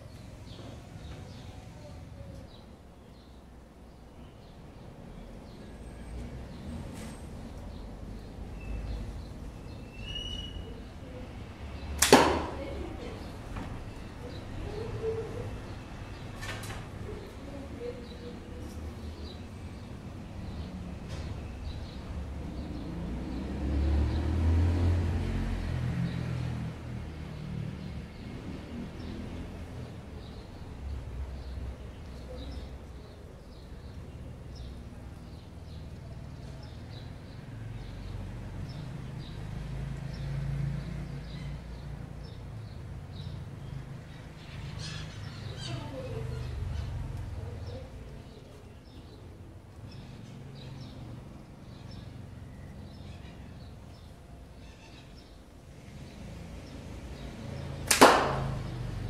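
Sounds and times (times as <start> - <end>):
vehicle passing by: 5.1 - 32.9, 33.5 - 59.0
bird chirping: 7.5 - 12.0.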